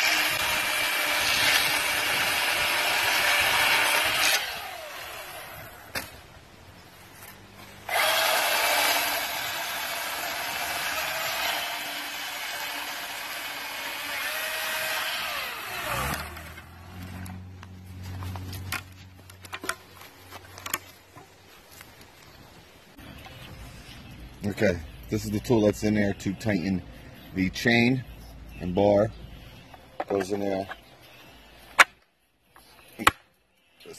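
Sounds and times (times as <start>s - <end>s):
chainsaw motor winding down: 0.0s - 5.9s, 7.8s - 17.4s
chainsaw cutting a branch: 0.0s - 6.1s, 7.8s - 17.4s.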